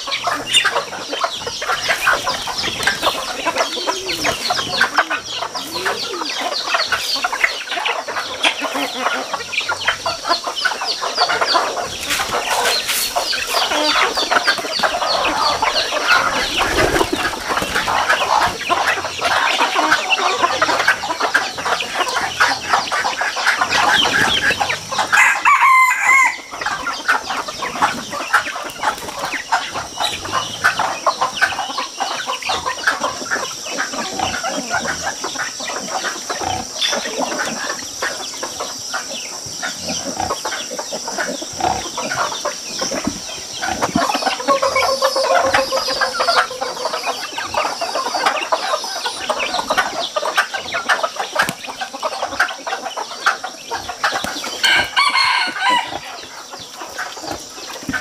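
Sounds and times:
chickens clucking: 0:00.0 - 0:58.0
rooster crowing: 0:25.1 - 0:26.6, 0:44.4 - 0:47.3, 0:54.6 - 0:56.1.

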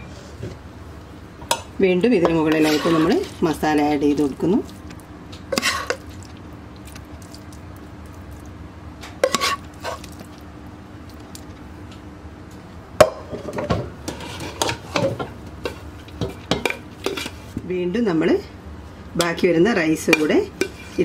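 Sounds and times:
faint steady hum: 0:00.0 - 0:21.0
spoon scraping a frying pan: 0:02.3 - 0:03.6, 0:05.5 - 0:06.1, 0:09.2 - 0:10.1, 0:14.1 - 0:17.5, 0:20.0 - 0:21.0.

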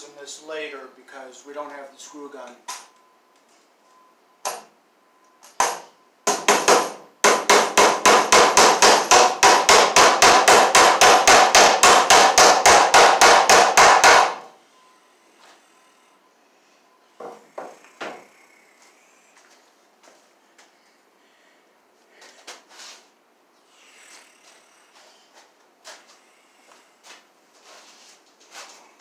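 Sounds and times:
hammer blows on nail: 0:05.6 - 0:14.6.

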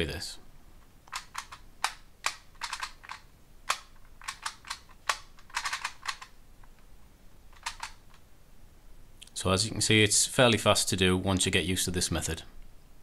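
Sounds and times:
plastic puzzle clicks: 0:01.0 - 0:06.8, 0:07.5 - 0:08.2.

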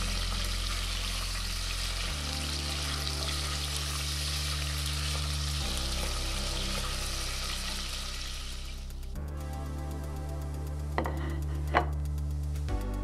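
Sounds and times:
pork fat sizzling: 0:00.0 - 0:13.0
soft background music: 0:00.0 - 0:13.0.

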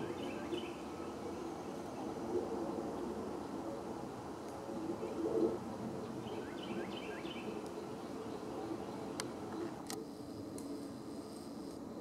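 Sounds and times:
bird chirping: 0:00.0 - 0:01.8, 0:06.2 - 0:09.7.

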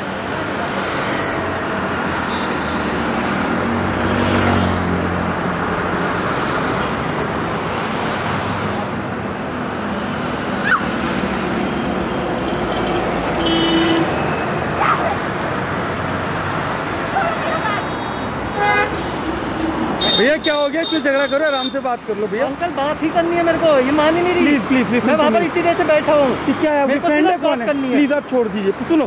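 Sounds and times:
cars and scooters passing: 0:00.0 - 0:29.0
vehicle horn: 0:12.7 - 0:14.1, 0:18.5 - 0:19.1, 0:20.0 - 0:21.8.

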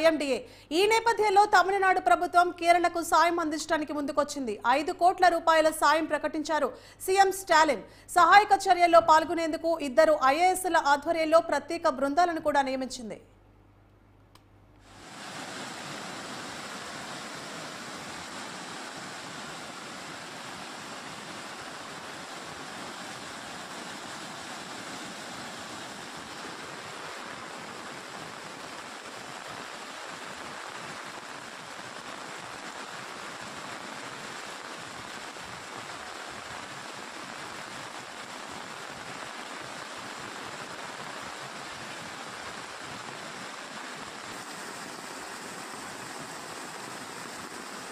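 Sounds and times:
floodwater rushing: 0:14.9 - 0:47.9.

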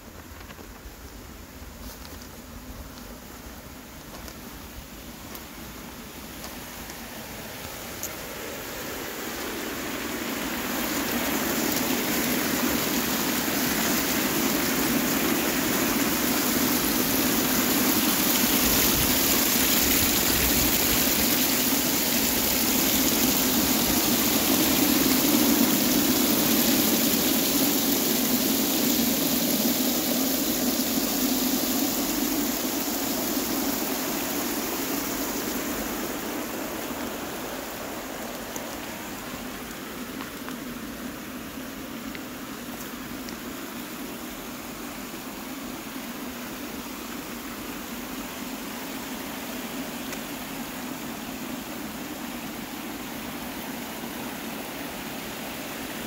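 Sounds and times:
garden fountain splashing: 0:02.4 - 0:56.0.

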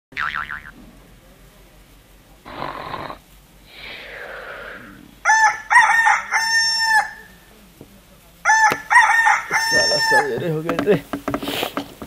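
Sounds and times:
rooster crowing: 0:05.2 - 0:07.4, 0:08.4 - 0:10.5.

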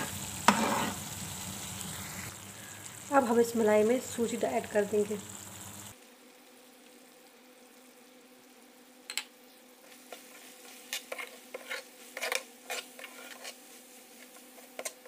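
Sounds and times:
spoon scraping metal pan: 0:00.0 - 0:01.1, 0:10.0 - 0:15.0
faint steady hum: 0:00.1 - 0:09.8.

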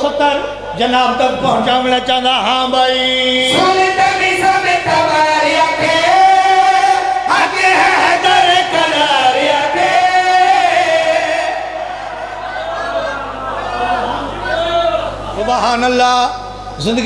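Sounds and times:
men singing over loudspeakers: 0:03.0 - 0:14.3.

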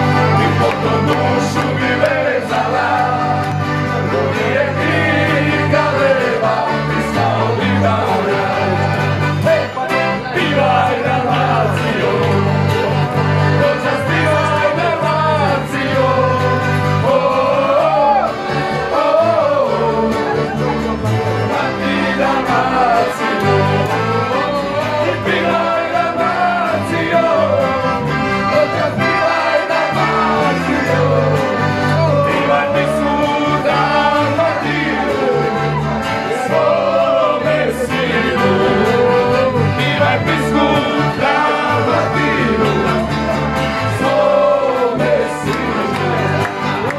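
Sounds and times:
accordion and guitar playing: 0:00.0 - 0:46.9
men singing loudly together: 0:00.0 - 0:46.9.

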